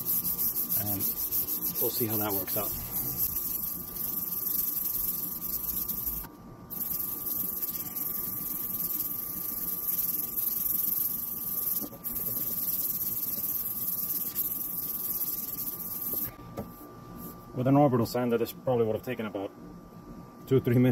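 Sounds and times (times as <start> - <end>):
sandpaper scratching plastic: 0.0 - 16.3
thin steady hum: 0.0 - 20.9.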